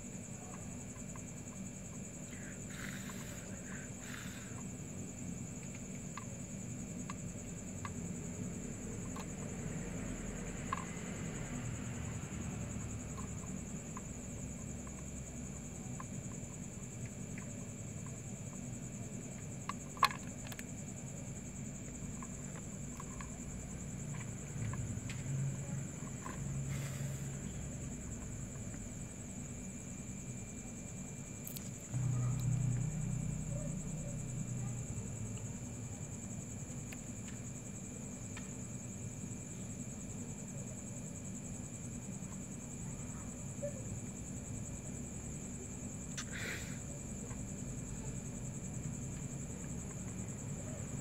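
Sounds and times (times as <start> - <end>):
low steady hum: 0.0 - 41.0
cricket trilling: 0.0 - 51.0
low hum: 31.8 - 35.1.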